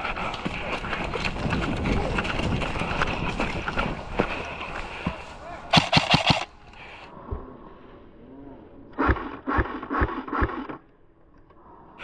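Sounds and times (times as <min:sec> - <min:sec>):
airsoft gun shots: 0:05.7 - 0:06.5, 0:09.0 - 0:10.8.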